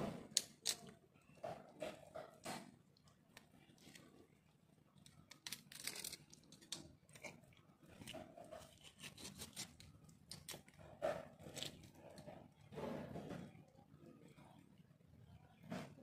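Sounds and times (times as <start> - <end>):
knife scraping fish: 8.0 - 11.8.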